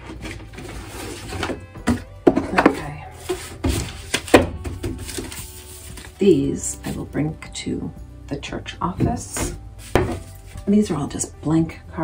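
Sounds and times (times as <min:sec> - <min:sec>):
paper rustling and sliding: 0:00.0 - 0:01.6, 0:03.2 - 0:06.2.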